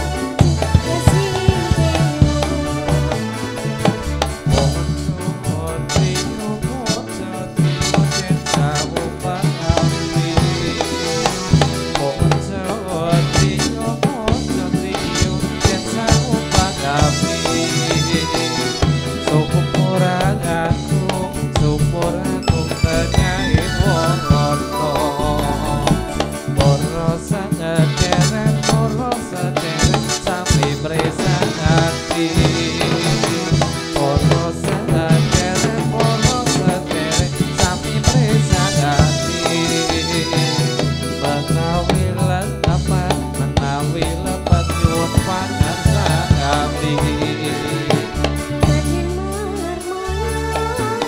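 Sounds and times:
drums beating: 0.0s - 39.6s
live band dance music: 0.0s - 51.0s
sustained melodic instruments: 21.0s - 27.5s.

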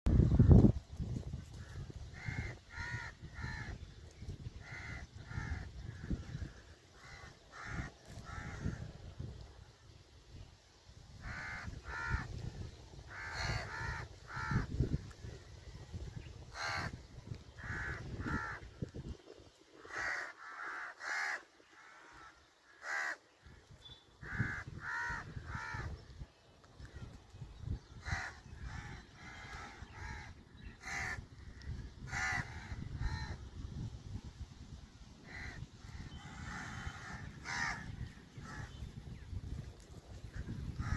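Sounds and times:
crows cawing: 1.6s - 3.8s, 4.6s - 8.9s, 11.2s - 12.4s, 13.1s - 14.9s, 16.5s - 17.0s, 17.6s - 18.7s, 19.8s - 23.2s, 24.2s - 26.0s, 28.0s - 33.4s, 35.2s - 38.7s, 40.4s - 40.9s.

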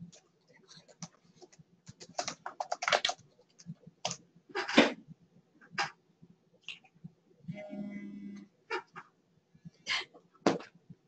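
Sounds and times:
computer keyboard typing: 0.1s - 4.2s.

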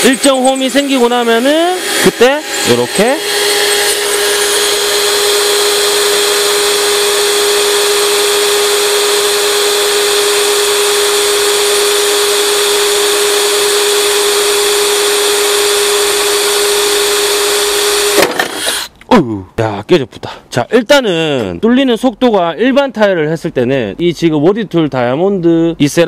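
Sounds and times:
drill grinding through tile: 0.0s - 19.0s.

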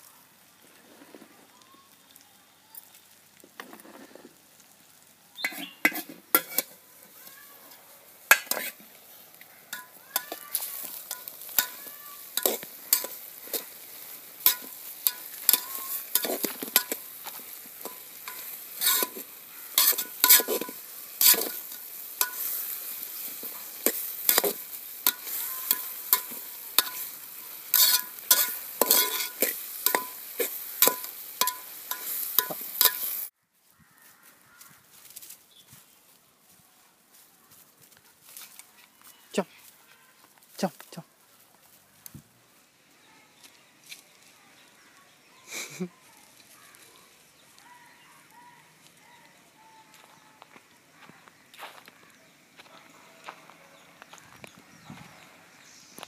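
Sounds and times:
okra sizzling: 0.0s - 36.2s, 36.8s - 56.0s
metal spoon clanking in steel pot: 5.4s - 6.8s, 8.3s - 8.8s, 9.7s - 13.8s, 14.4s - 17.0s, 17.8s - 33.2s.

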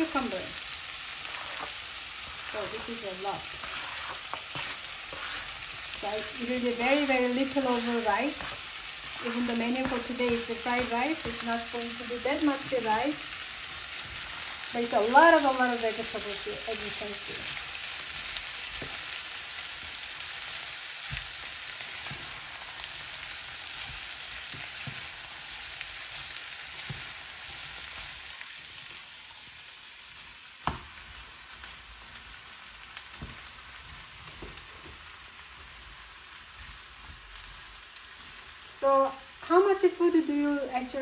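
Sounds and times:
food sizzling in frying pan: 0.0s - 41.0s
spatula knocking and scraping pan: 1.2s - 13.2s.

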